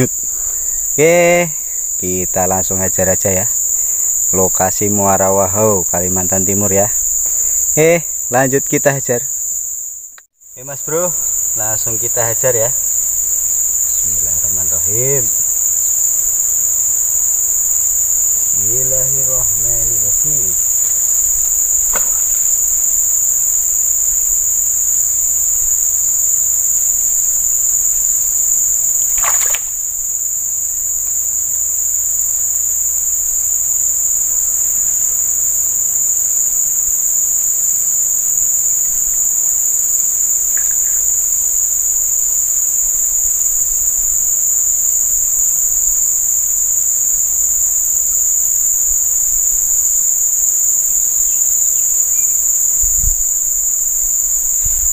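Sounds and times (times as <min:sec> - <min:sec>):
high-pitched insect drone: 0:00.0 - 0:54.9
sharp knock: 0:21.9 - 0:22.5.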